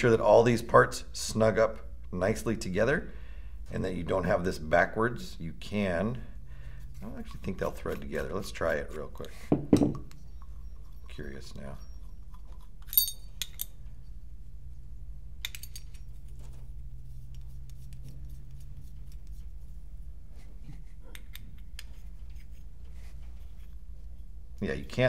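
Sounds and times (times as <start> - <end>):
metal parts clicking and clinking: 12.6 - 13.8, 15.4 - 16.5.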